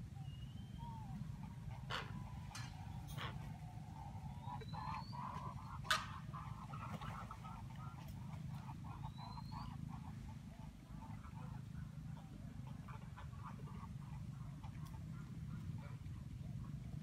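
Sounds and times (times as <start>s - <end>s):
birds calling: 0.0s - 17.0s
steady low hum: 0.0s - 17.0s.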